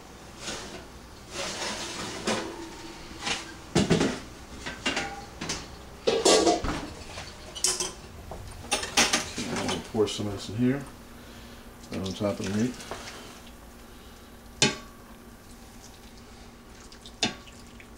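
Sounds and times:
metal pots and lids clattering: 0.4s - 9.9s.

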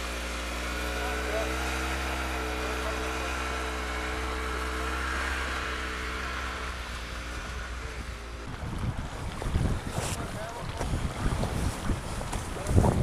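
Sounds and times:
engine idling: 0.0s - 8.7s
creek flowing: 0.0s - 13.0s
wind buffeting microphone: 6.7s - 13.0s.

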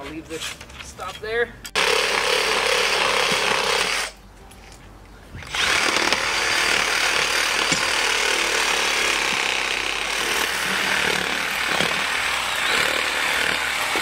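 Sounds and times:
reciprocating saw cutting roots: 1.8s - 4.2s, 5.4s - 14.0s.

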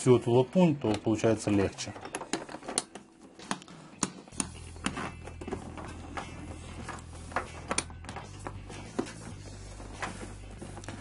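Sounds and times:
buckles and leather straps clicking: 0.9s - 8.7s.

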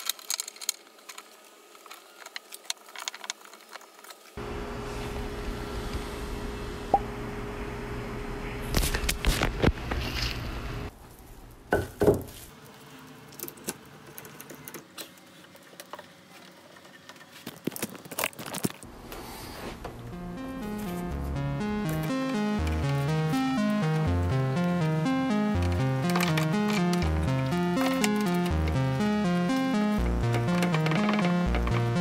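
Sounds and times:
metal clamp parts clicking: 0.0s - 1.3s.

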